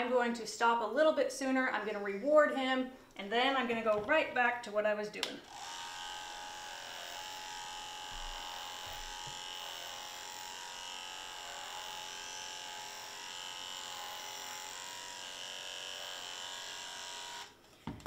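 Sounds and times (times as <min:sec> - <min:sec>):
electric clippers humming: 0:05.4 - 0:17.6.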